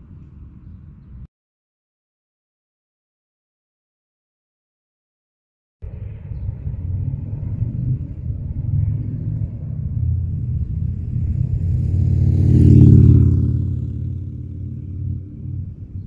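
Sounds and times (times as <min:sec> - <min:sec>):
motorcycle riding by: 0:06.0 - 0:16.0.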